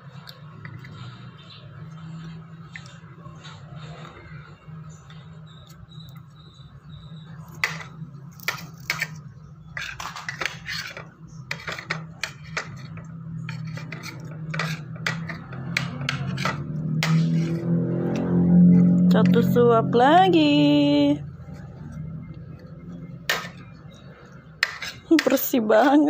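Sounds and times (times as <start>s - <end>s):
metal spoon scraping plastic plate: 7.5s - 18.3s, 23.3s - 25.6s.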